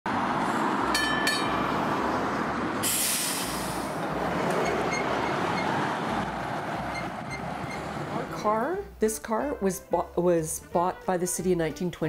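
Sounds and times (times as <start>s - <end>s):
streetcar rumbling on track: 0.1s - 8.6s
burst of hiss: 2.8s - 4.0s.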